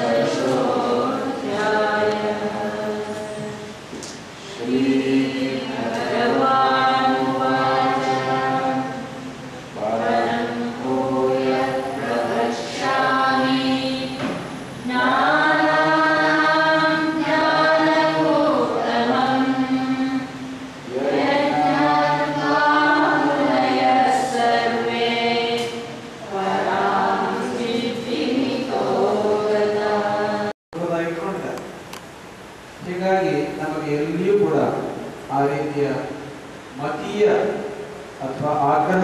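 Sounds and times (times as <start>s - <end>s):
voices singing a chant: 0.0s - 30.6s.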